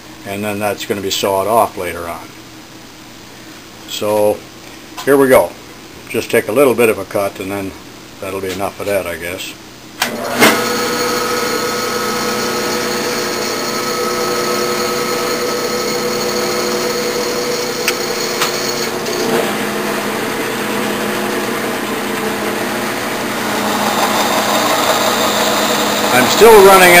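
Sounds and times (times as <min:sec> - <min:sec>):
lathe starting clunk: 0:10.0 - 0:10.9, 0:17.8 - 0:19.7
metal lathe motor hum: 0:10.2 - 0:27.0.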